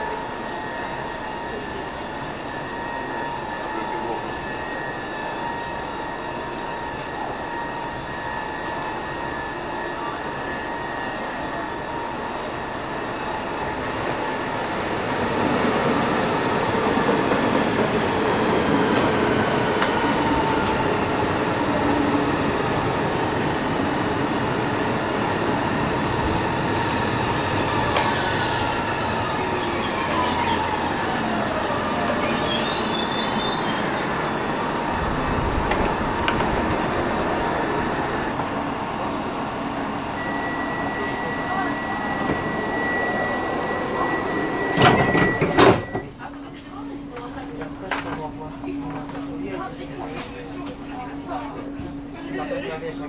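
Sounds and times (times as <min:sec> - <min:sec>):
electric train motor whine: 0:00.0 - 0:46.4
high brake squeal: 0:28.1 - 0:31.2, 0:32.0 - 0:34.6.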